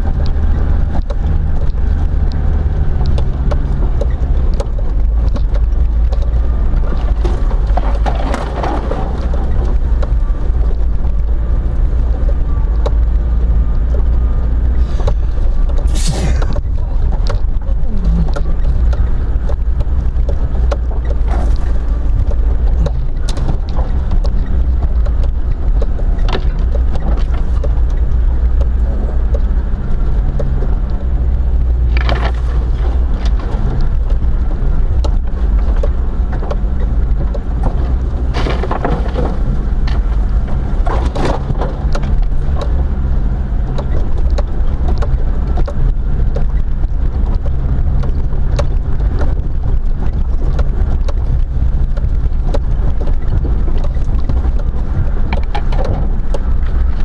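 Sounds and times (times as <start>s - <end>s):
vehicle engine and road rumble: 0.0s - 57.0s
branches scraping vehicle body: 38.1s - 41.8s
knocks and rattles: 43.7s - 57.0s.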